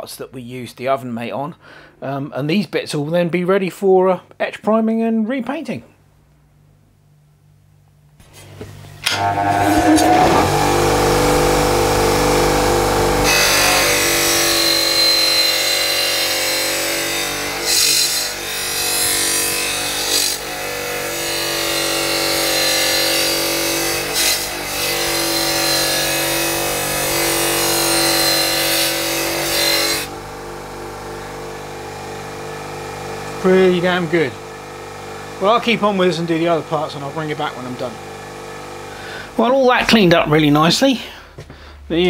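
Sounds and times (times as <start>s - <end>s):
bench grinder motor running: 9.0s - 39.4s
wire wheel scrubbing metal plate: 9.1s - 14.4s.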